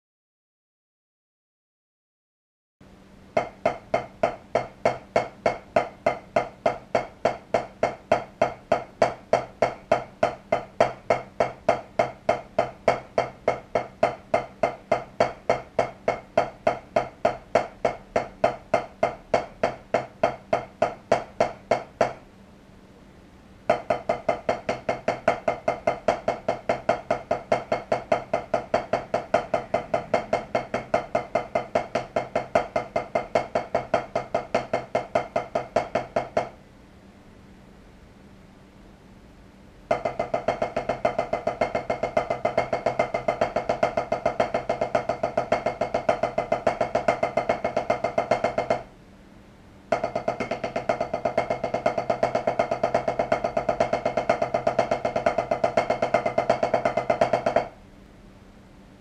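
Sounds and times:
drumsticks tapping a practice pad: 3.4s - 22.2s, 23.7s - 36.6s, 39.9s - 48.9s, 49.9s - 57.8s.

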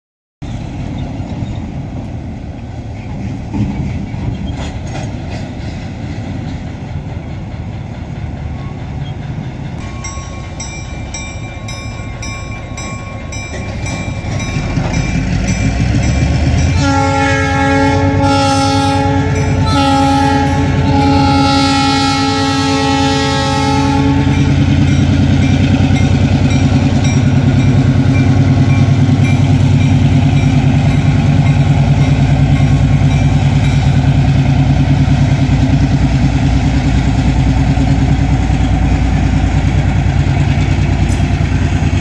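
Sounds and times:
diesel locomotive rumbling: 0.4s - 42.0s
bell ringing: 9.8s - 16.8s
loud air horn: 16.7s - 24.6s.

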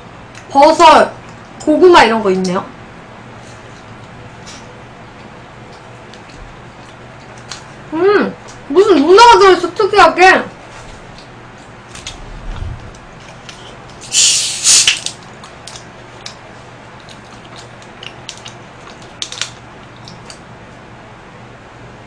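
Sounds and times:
carbonation hiss: 14.0s - 15.2s.

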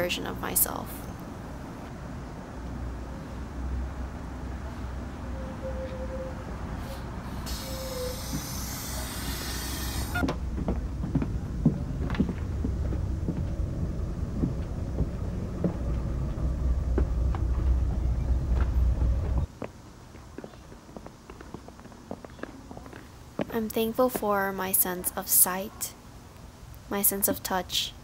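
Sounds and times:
bus engine rumbling: 0.0s - 19.5s
air hiss: 6.8s - 10.2s
footsteps and knocks: 10.2s - 24.4s.

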